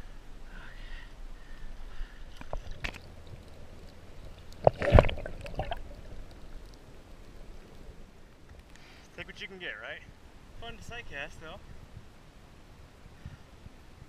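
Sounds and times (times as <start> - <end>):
water sloshing and gurgling: 1.6 - 8.9
water splashes: 2.3 - 8.7.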